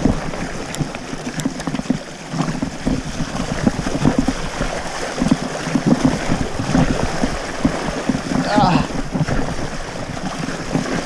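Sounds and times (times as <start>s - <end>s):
wind buffeting camera mic: 0.0s - 11.0s
bike clicks and rattles: 0.6s - 2.6s.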